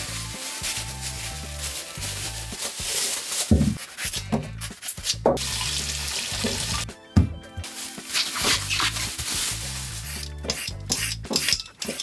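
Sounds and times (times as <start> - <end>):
background music: 0.0 - 12.0
tap water running into sink: 5.4 - 6.8.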